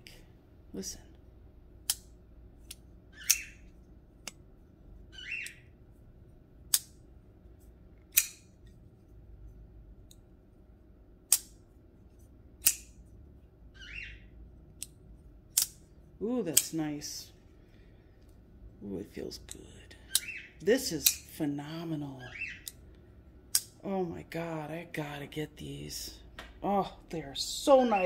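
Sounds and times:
folding knife snapping open and shut: 8.1 - 8.5, 12.6 - 12.9, 15.5 - 15.8.

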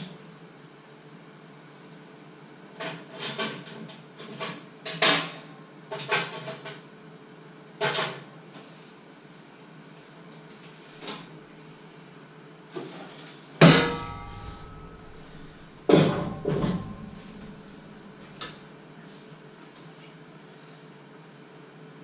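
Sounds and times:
loud ringing clank: 13.6 - 18.4
metal clanks and clatters: 13.6 - 18.6.

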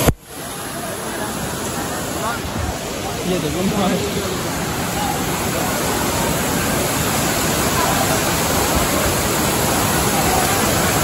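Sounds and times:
stream running over rocks: 0.0 - 11.0
waterfall rushing: 0.0 - 11.0.

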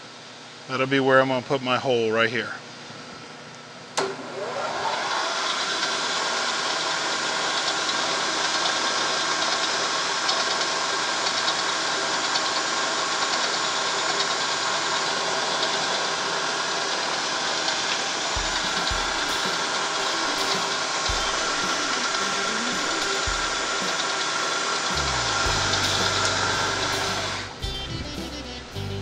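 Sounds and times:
milling machine spindle running: 4.4 - 27.8
drill boring into metal: 4.8 - 27.6.

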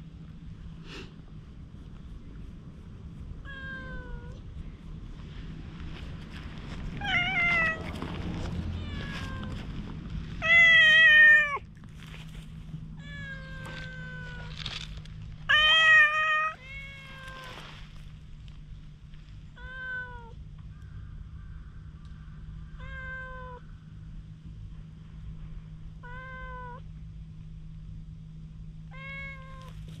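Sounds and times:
cat meowing: 7.0 - 7.9, 8.8 - 9.6, 10.4 - 11.6, 13.0 - 14.5, 15.5 - 17.5, 22.8 - 23.6, 26.0 - 26.8, 28.9 - 29.8.

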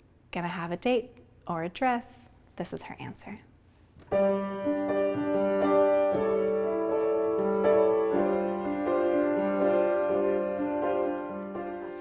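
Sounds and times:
upright piano chords: 4.1 - 12.0.

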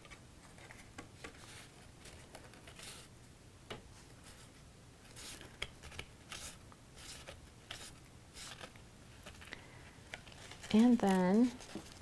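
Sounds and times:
cardstock rustling and scraping: 0.0 - 3.1, 5.1 - 9.5, 10.1 - 12.0.

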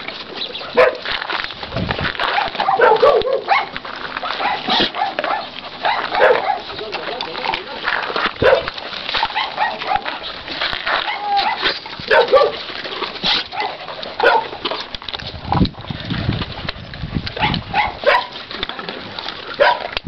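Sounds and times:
dogs barking: 0.5 - 1.2, 2.2 - 7.2, 8.3 - 14.8, 17.4 - 18.4, 19.4 - 20.0.

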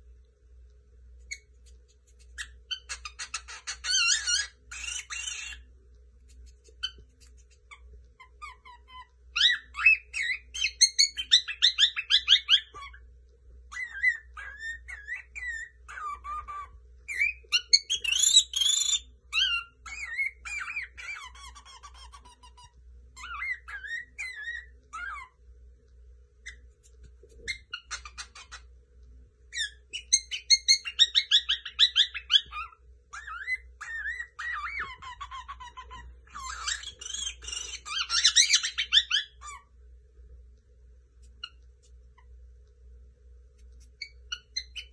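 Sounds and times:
cockatiel chattering and warbling: 1.2 - 5.7, 6.3 - 13.0, 13.7 - 25.4, 26.4 - 28.7, 29.5 - 39.7, 43.8 - 44.9.

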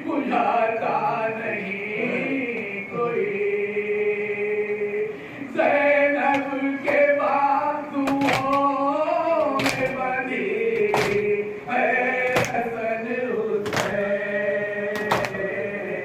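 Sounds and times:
men chanting in unison: 0.0 - 16.0
chest-beating slaps: 10.8 - 11.3, 12.3 - 12.6, 13.7 - 14.0, 15.0 - 15.4.

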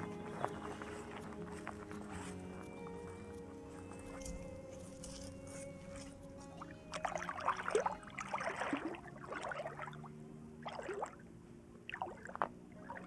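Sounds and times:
lake water splashing: 5.4 - 13.0.

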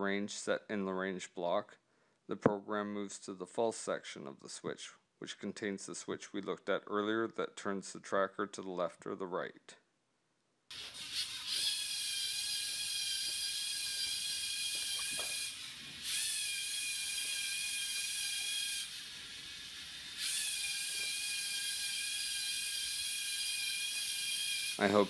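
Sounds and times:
robot motors whining: 10.7 - 25.0.

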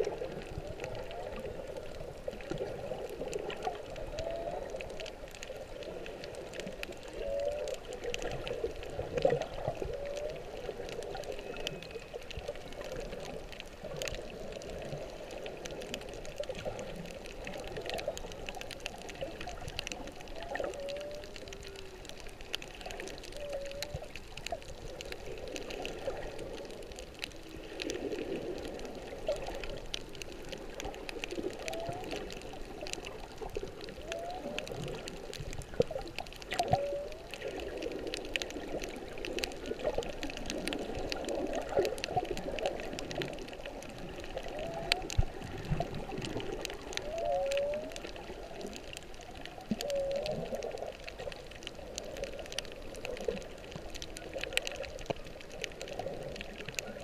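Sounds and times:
underwater water noise: 0.0 - 57.0
whale song calls: 2.4 - 13.4, 16.6 - 25.0, 31.3 - 38.9, 42.7 - 53.4
low whale moans: 3.4 - 5.2, 7.0 - 12.2, 19.2 - 24.3, 31.4 - 32.5, 33.6 - 37.8, 44.0 - 48.8, 49.6 - 50.9.

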